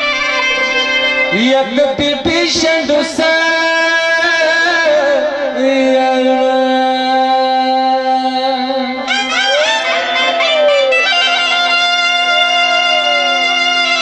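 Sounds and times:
clarinet: 0.0 - 1.6, 9.0 - 14.0
harmonium: 0.0 - 14.0
man singing long notes: 0.8 - 14.0.

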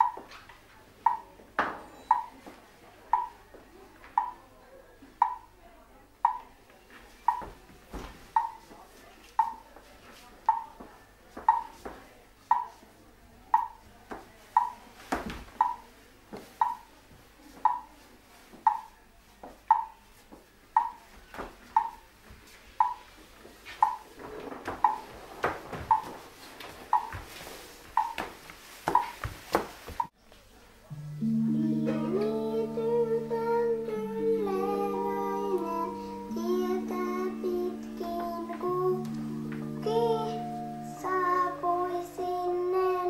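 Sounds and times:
rustling: 23.3 - 30.1.

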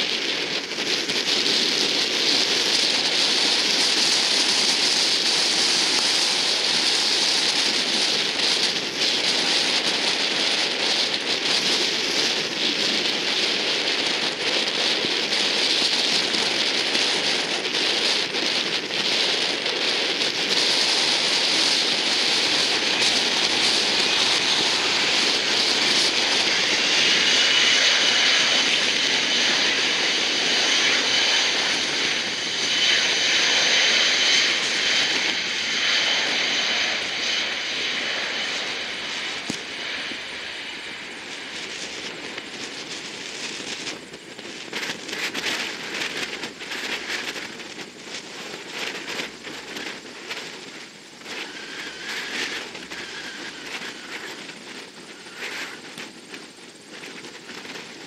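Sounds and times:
jet engines hissing: 16.6 - 45.0, 50.8 - 56.4.

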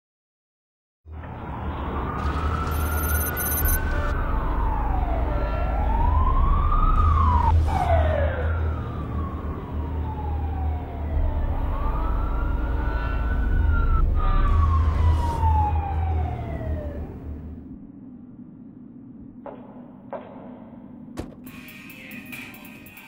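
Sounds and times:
siren wailing: 1.2 - 18.2
low rumble: 3.4 - 21.2.

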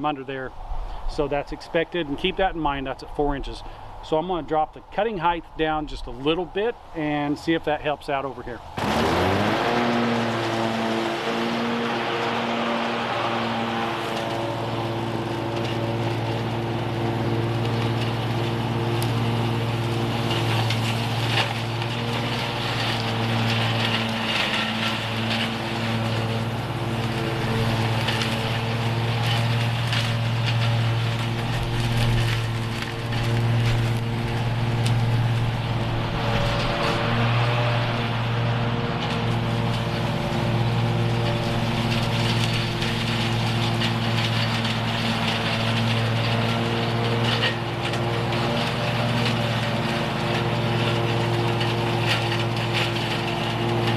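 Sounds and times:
lawn mower engine drone: 0.0 - 53.9
leaves crackling: 0.0 - 53.9.

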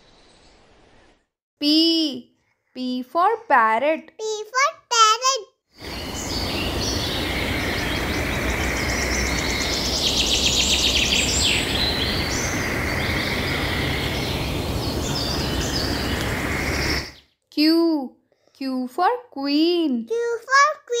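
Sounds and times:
steady background noise: 5.8 - 17.1
parrots chirping: 5.8 - 17.2.

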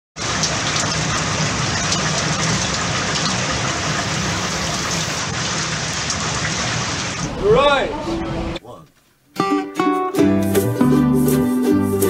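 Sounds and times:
heavy rain falling: 0.2 - 7.6.

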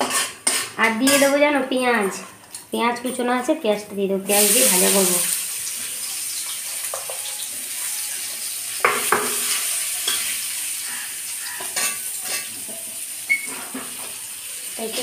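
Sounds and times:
metal spatula scraping pan: 0.0 - 1.4, 11.5 - 14.0
onions sizzling in hot oil: 4.3 - 15.0.

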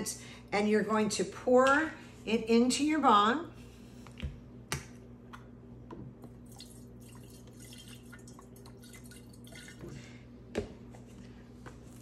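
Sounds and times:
liquid trickling into glass: 6.4 - 9.9.

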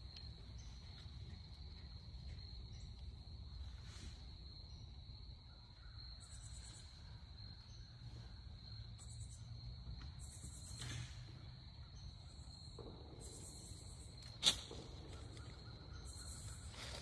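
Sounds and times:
crickets chirring: 0.0 - 17.0.

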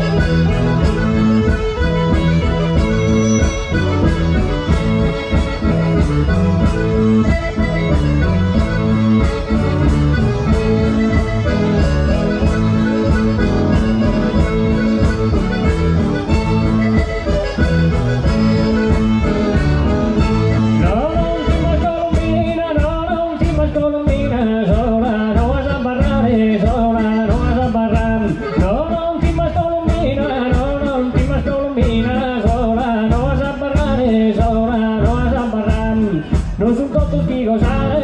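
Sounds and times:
accordion folk dance music: 0.0 - 38.0
person singing: 20.8 - 38.0.

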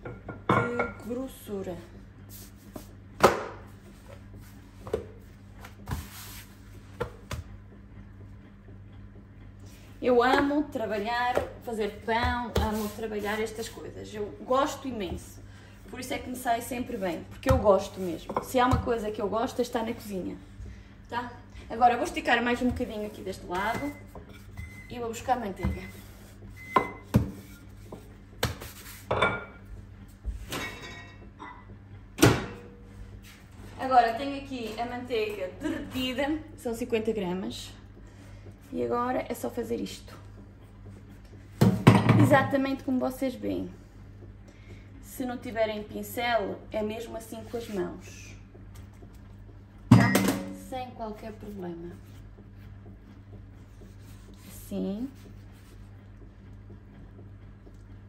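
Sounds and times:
dishes clinking: 0.0 - 1.1, 30.5 - 31.7, 49.9 - 50.6
dough knocking on countertop: 3.2 - 3.7, 17.4 - 19.0, 26.8 - 27.5
rolling pin on stone worktop: 10.1 - 15.4, 16.0 - 20.2, 22.0 - 29.6, 51.0 - 56.0.

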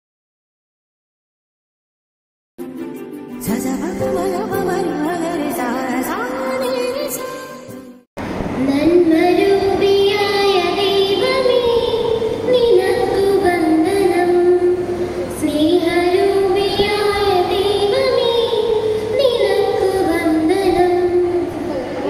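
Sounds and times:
girls singing a prayer song: 8.6 - 22.0.

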